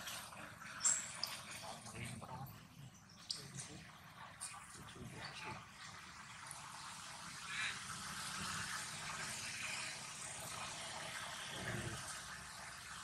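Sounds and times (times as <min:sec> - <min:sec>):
distant road traffic hum: 0:03.2 - 0:13.0.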